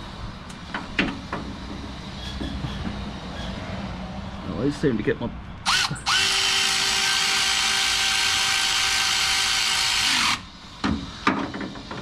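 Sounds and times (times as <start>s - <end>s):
cordless power tool whine: 5.6s - 10.5s.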